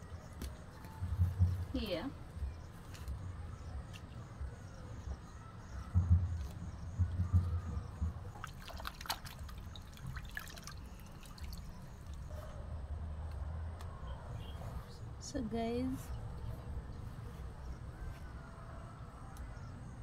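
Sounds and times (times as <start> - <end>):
dull low thumps: 1.0 - 2.6, 5.1 - 8.6
water trickling and dripping: 6.0 - 12.3
small splashes and clicks: 8.3 - 12.3.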